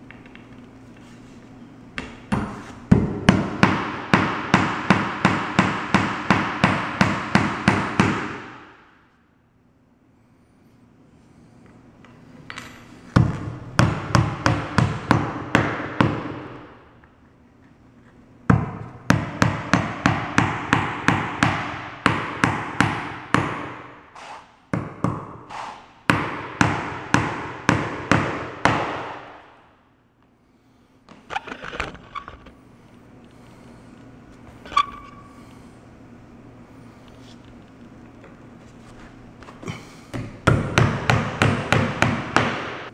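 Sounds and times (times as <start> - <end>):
hammer driving nails into wood: 3.3 - 8.7.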